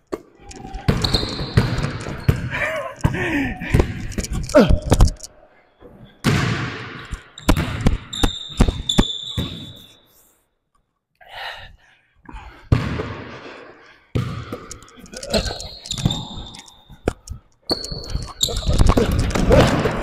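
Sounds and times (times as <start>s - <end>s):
high shoe squeak: 0.5s - 2.5s, 7.4s - 10.1s, 15.2s - 19.4s
basketball bouncing on a court: 0.8s - 4.0s, 6.2s - 9.8s, 12.7s - 13.3s, 14.2s - 14.7s.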